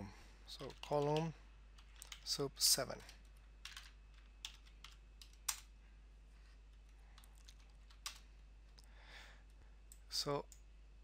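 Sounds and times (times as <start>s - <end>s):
computer keyboard keystrokes: 0.6s - 2.3s, 3.0s - 5.7s, 7.2s - 8.2s.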